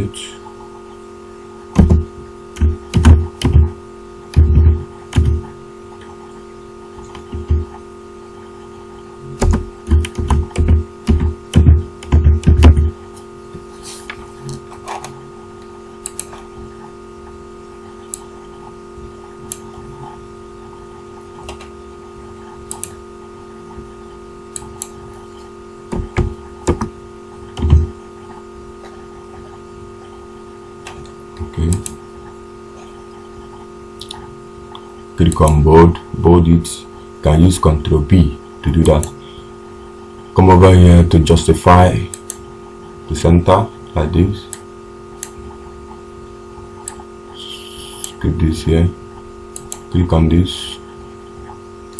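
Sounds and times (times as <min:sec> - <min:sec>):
electrical hum: 0:00.0 - 0:51.9
keyboard keystrokes: 0:09.4 - 0:12.8.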